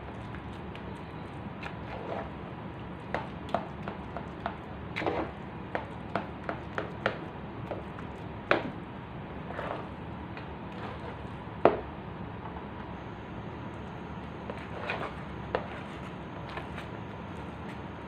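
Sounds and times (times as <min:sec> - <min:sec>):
spatula scraping an aluminium pot: 0:14.6 - 0:16.0.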